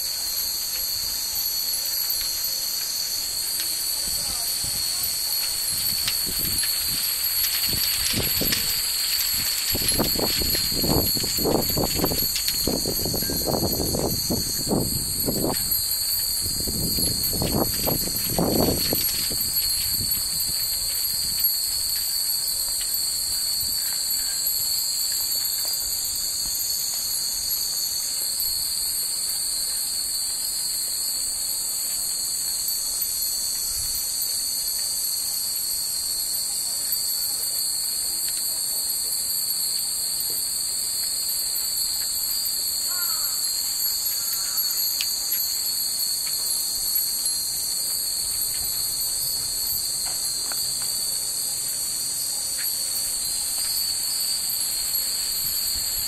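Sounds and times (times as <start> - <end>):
cicadas buzzing: 0.0 - 56.0
wind chimes ringing: 0.0 - 56.0.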